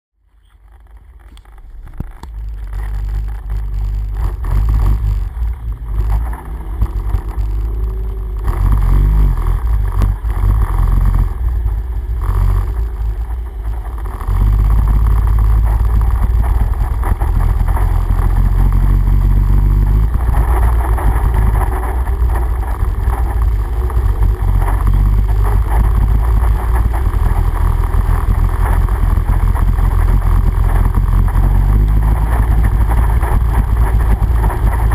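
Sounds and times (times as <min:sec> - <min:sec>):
quad bike engine running: 0:00.4 - 0:34.9
water splashing under wheels: 0:00.6 - 0:34.9.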